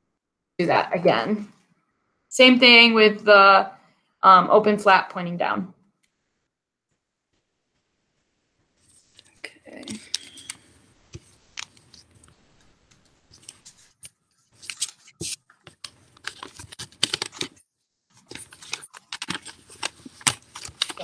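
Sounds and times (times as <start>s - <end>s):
paper rustling and crackling: 8.8s - 21.0s.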